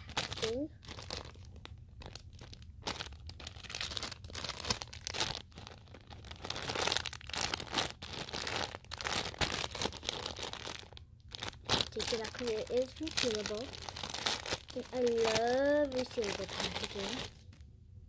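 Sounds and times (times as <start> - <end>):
plastic bag crinkling: 0.0 - 17.6.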